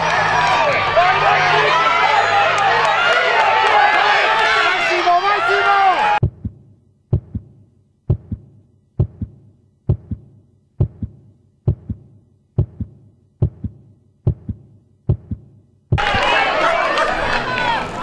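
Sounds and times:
heartbeat thumps: 6.2 - 16.0.

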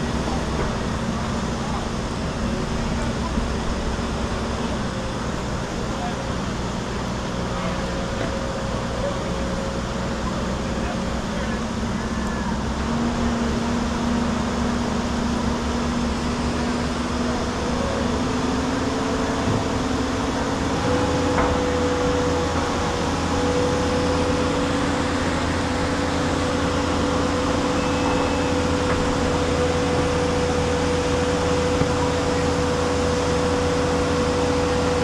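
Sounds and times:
machine hum: 10.6 - 35.0.

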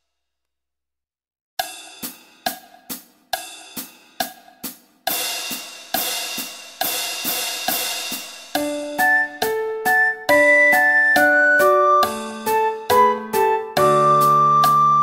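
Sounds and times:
electric piano: 8.6 - 15.0.

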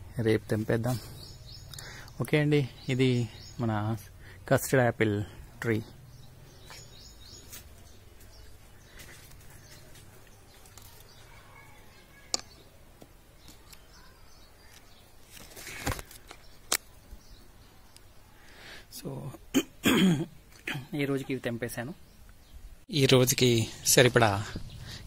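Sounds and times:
faint bird chirps: 0.1 - 4.4, 5.6 - 15.8
brief rustle: 14.6 - 16.9.

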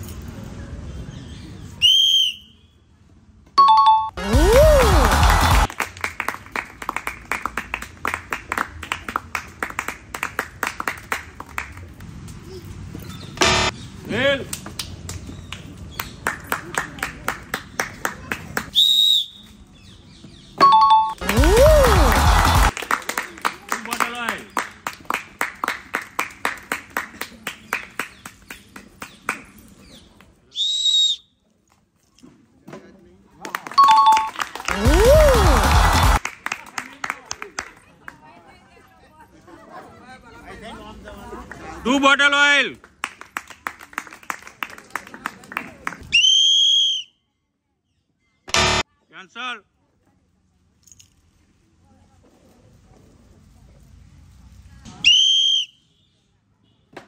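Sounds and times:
winner jingle sound effect: 3.6 - 4.4, 20.6 - 21.8, 33.8 - 34.4
people clapping: 4.2 - 12.0, 14.4 - 18.8, 21.0 - 30.4, 33.3 - 38.4, 42.6 - 46.1.

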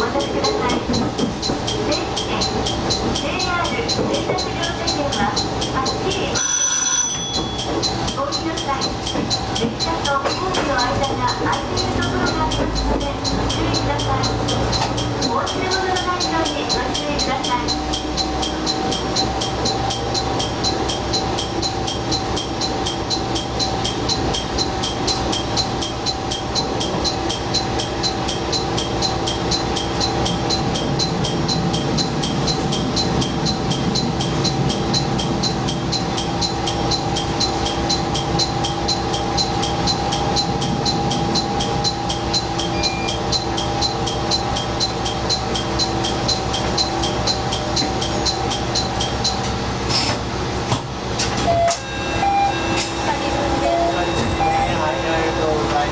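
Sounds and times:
diesel railcar engine rumble: 0.0 - 55.9
fast even ticking: 7.8 - 49.4.

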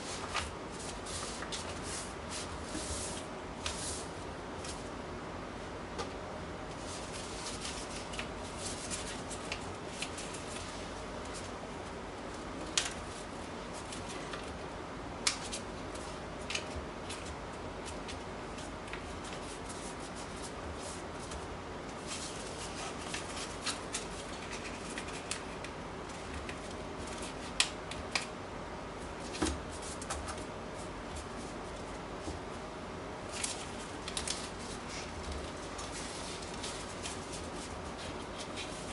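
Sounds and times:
paper being folded and creased: 22.1 - 25.5.

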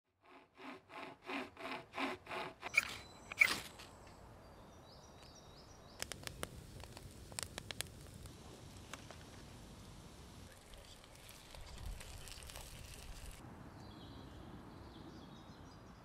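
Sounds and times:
hand saw cutting log: 0.1 - 3.8
campfire crackling: 5.2 - 13.6
sharp wood cracks: 5.9 - 9.3.

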